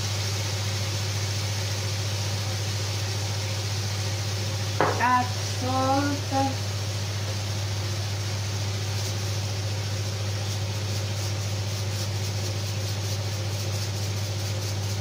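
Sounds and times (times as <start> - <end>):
chicken sizzling in oil: 0.0 - 15.0
steady low hum: 4.0 - 15.0.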